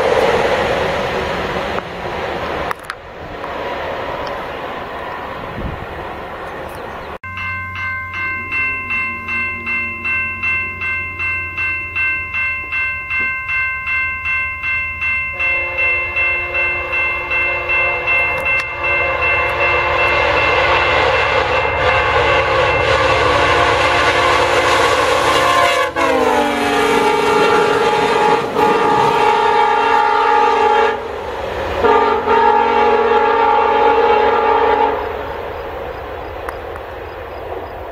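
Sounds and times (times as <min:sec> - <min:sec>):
passing train rumble: 0:00.0 - 0:37.9
high pulsing ringing: 0:07.2 - 0:25.6
locomotive air horn: 0:15.3 - 0:31.1, 0:31.8 - 0:35.2.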